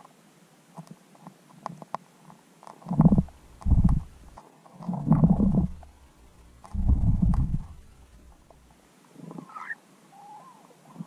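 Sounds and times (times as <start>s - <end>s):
faint clicks: 0.7s - 8.8s
muffled underwater rumbles: 2.9s - 8.7s.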